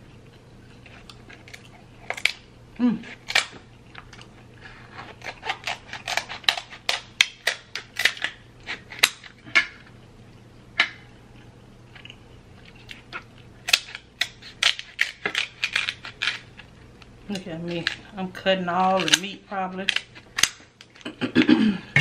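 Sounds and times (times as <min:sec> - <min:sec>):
scissors snapping crab shell: 0:05.2 - 0:09.3, 0:13.6 - 0:16.4, 0:19.0 - 0:21.0.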